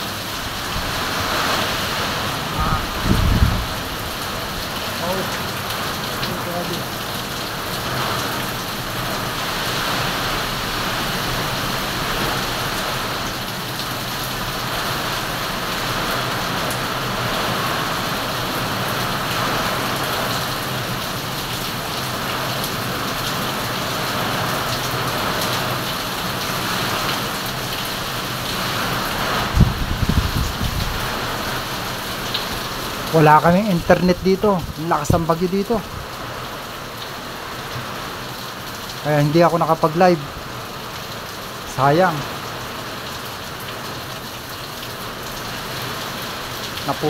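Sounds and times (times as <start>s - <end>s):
strong wind: 0.0s - 6.2s, 21.8s - 36.6s
heavy rain pouring: 0.0s - 47.0s.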